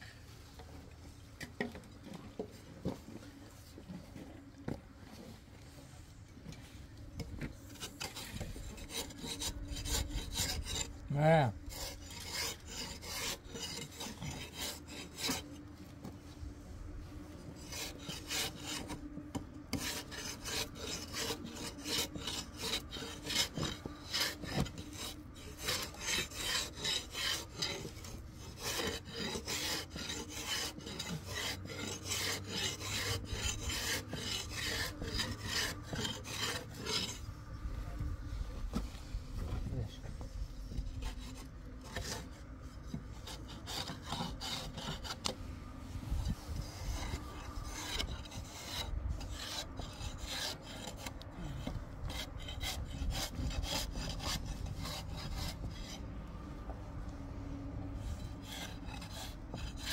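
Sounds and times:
hand tool rasping wood: 7.7s - 15.6s, 17.6s - 19.1s, 19.7s - 37.3s, 40.2s - 45.4s, 46.2s - 56.0s, 57.9s - 59.9s.

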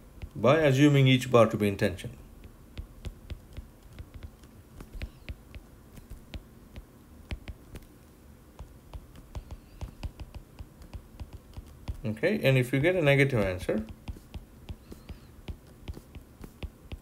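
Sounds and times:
stylus tapping on glass screen: 2.4s - 7.9s, 8.6s - 12.0s, 13.4s - 17.0s.

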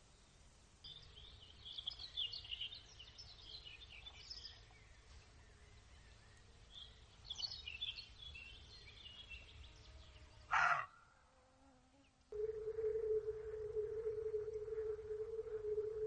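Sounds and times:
small birds chirping: 0.1s - 10.9s
deer barking: 10.5s - 11.0s
steady droning tone: 12.3s - 16.0s.

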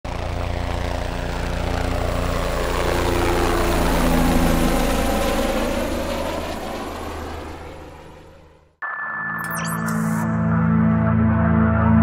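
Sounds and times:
helicopter engine idling: 0.1s - 8.6s.

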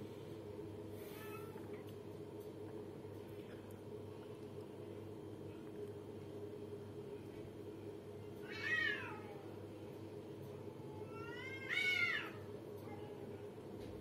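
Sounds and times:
cats yowling: 8.4s - 9.4s, 11.0s - 13.1s.

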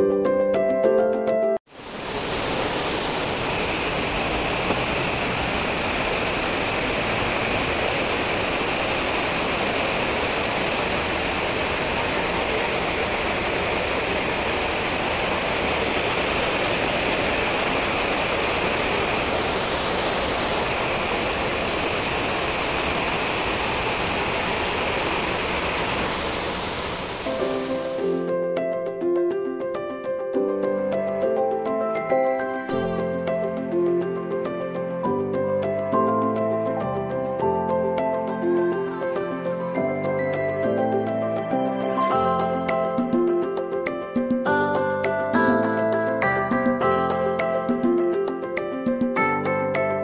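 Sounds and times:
heavy rain on roofs and trees: 1.7s - 28.1s.

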